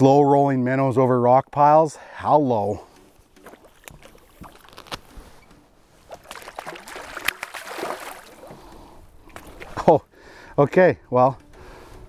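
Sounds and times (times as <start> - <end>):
fish splashing in water: 6.1 - 8.7.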